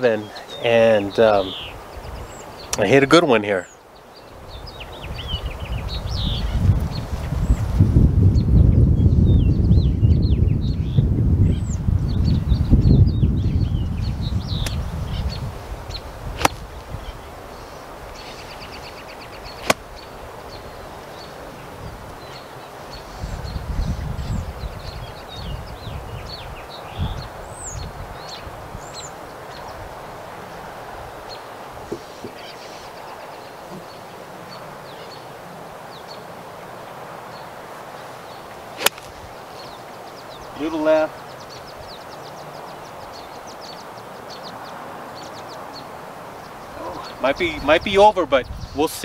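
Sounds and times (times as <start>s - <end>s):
small birds chirping: 0.0s - 49.0s
soft outdoor hiss: 0.0s - 49.0s
golf club striking ball: 16.4s - 16.6s, 19.6s - 19.9s, 38.8s - 39.2s.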